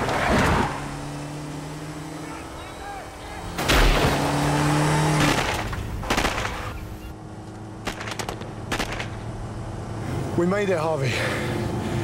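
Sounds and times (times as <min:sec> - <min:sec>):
car engine accelerating hard: 0:00.0 - 0:05.7
gunfire bursts: 0:05.2 - 0:06.8, 0:07.8 - 0:09.2.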